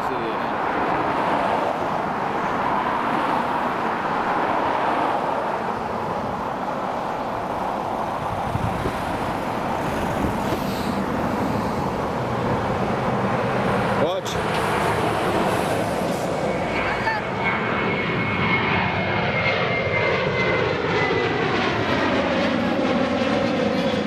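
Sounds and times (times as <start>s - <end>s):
road traffic noise: 0.0s - 24.0s
car going by: 0.2s - 18.4s.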